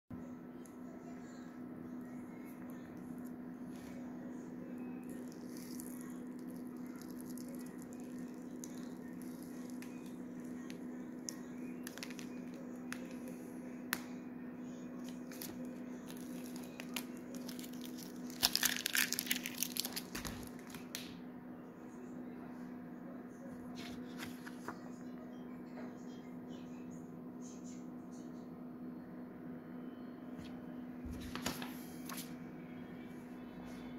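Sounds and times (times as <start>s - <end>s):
vinyl film peeling crackles: 5.0s - 13.3s, 15.0s - 21.0s, 31.3s - 32.3s.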